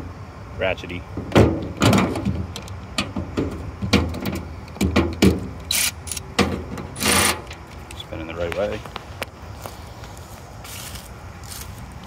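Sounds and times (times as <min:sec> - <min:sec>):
ratchet wrench clicking: 0:05.7 - 0:06.3.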